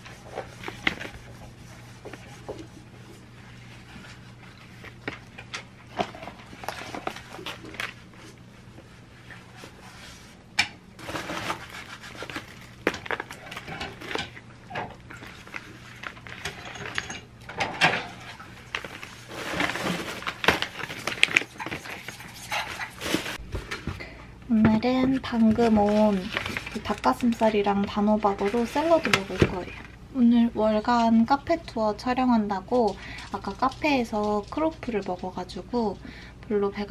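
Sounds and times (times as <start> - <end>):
plastic packaging rustling: 0.0 - 10.4, 11.0 - 17.1, 17.9 - 24.1, 25.0 - 30.0
faint steady hum: 0.0 - 36.9
plastic bag rummaged through: 3.7 - 8.4, 11.0 - 17.1, 18.1 - 24.0, 25.1 - 30.0.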